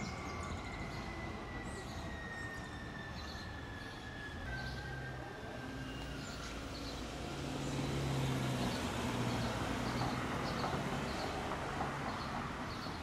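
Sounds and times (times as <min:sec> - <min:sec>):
vehicle engine hum: 0:05.4 - 0:13.0.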